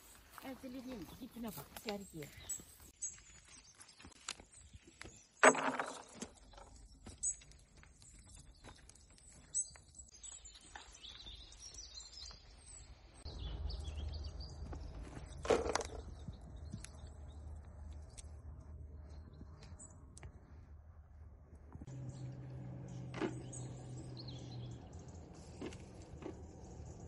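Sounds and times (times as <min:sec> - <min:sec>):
olives rattling into plastic crate: 0:05.4 - 0:06.4, 0:15.3 - 0:16.1
low rumble: 0:13.3 - 0:27.0.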